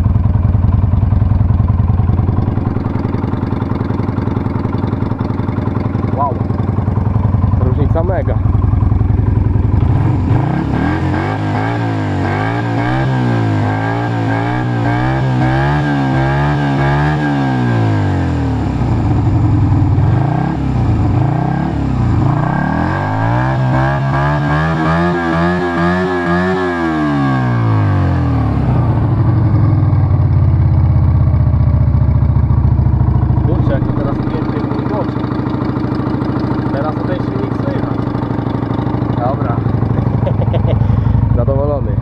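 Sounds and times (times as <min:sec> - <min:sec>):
motorcycle engine revving: 0:00.0 - 0:42.0.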